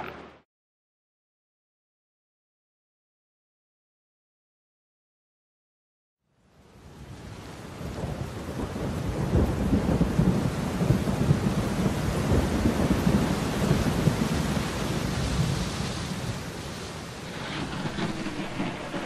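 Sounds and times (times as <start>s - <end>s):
rain: 6.3s - 19.0s
rolling thunder: 7.8s - 19.0s.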